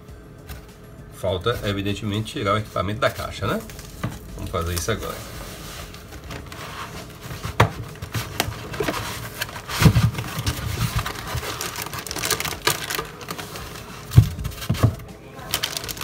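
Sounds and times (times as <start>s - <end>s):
plastic bag crinkling: 3.2s - 16.0s
foam scraping cardboard box: 5.0s - 14.9s.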